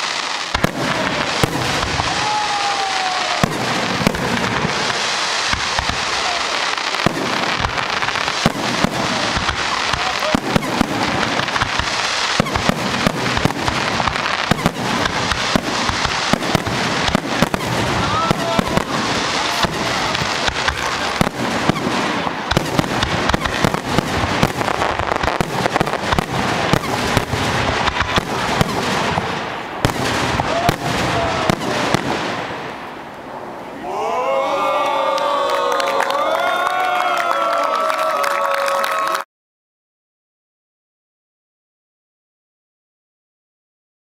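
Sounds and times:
fireworks bursting and crackling: 0.0 - 33.7.

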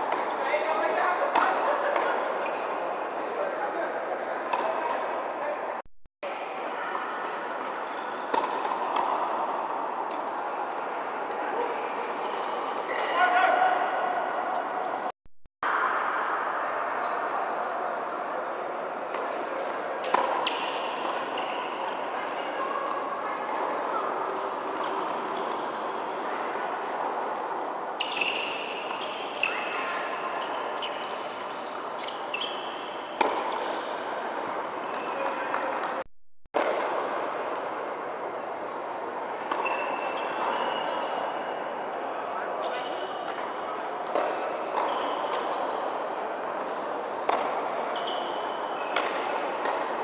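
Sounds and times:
tennis balls struck and bouncing: 4.5 - 4.8, 8.3 - 10.4, 19.1 - 21.5, 33.2 - 33.7, 43.3 - 45.6, 47.3 - 47.6, 48.8 - 50.0
hum of hall noise: 15.7 - 36.0, 36.6 - 50.0.

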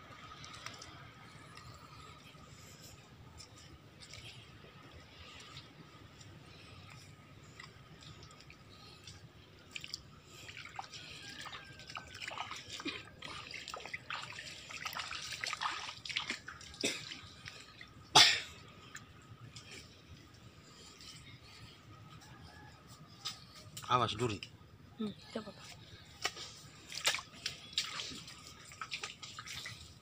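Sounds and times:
footsteps squelching in wet sand: 0.1 - 17.8, 25.9 - 30.0.

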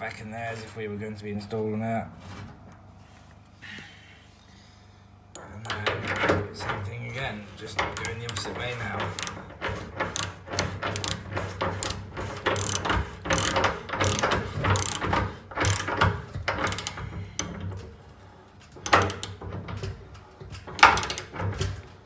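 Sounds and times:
ratchet spanner clicking: 7.8 - 17.5.

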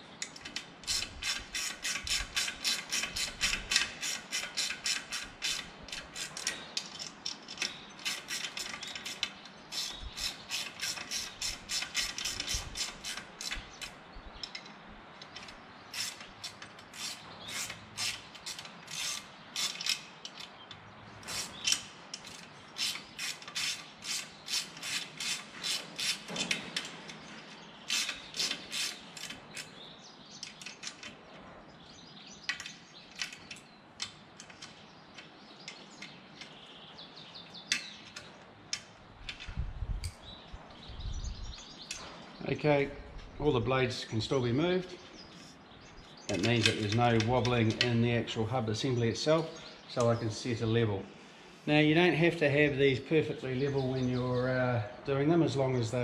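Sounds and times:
ratchet wrench clicking: 0.3 - 14.6, 15.4 - 20.5, 21.3 - 26.5, 27.9 - 29.7.

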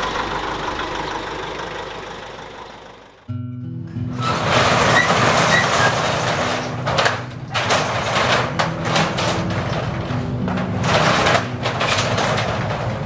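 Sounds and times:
metal shutter door rattling: 4.1 - 13.0.

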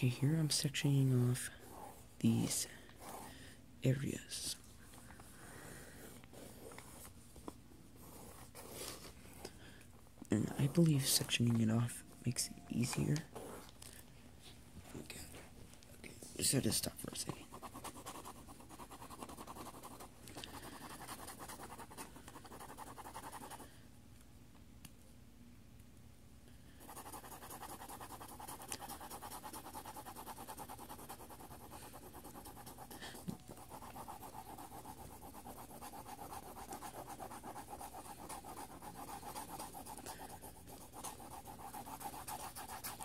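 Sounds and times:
pencil scratching on paper: 1.0 - 3.3, 8.0 - 9.0, 10.4 - 11.4, 17.4 - 23.6, 26.8 - 43.0.

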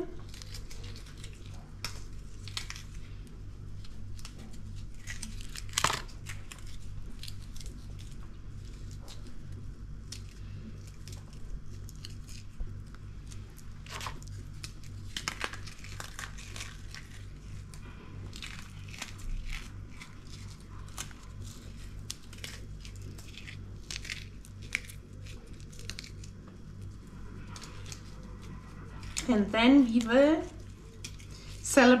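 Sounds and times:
biscuits crushed between fingers: 3.8 - 28.2.

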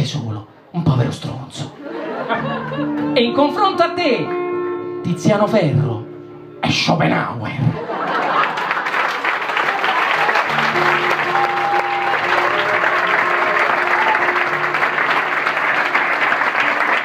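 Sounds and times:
music with held notes: 2.0 - 7.1, 10.4 - 17.0
audience applauding: 7.9 - 17.0.

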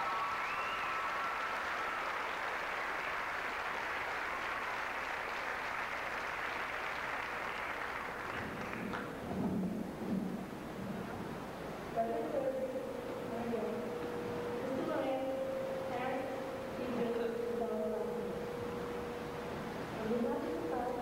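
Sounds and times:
high whistle: 0.0 - 1.4
audience applauding: 0.0 - 9.2.

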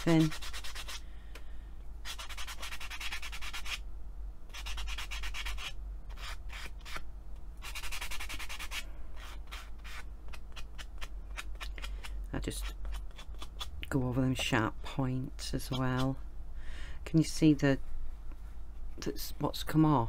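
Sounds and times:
sanding pad rubbing clay: 0.0 - 1.0, 2.0 - 3.8, 4.5 - 7.0, 7.6 - 11.8.

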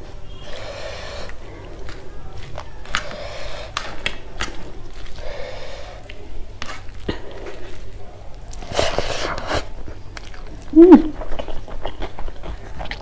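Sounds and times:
fingers squishing rice: 0.3 - 13.0.

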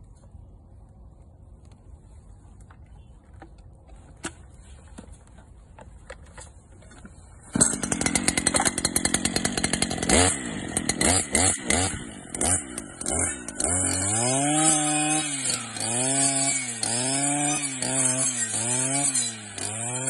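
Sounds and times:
brushcutter engine running: 7.4 - 20.0.

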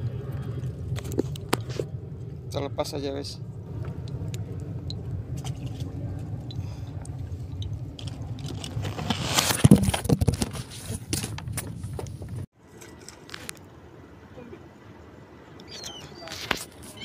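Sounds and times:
boat engine rumbling: 0.0 - 12.5.

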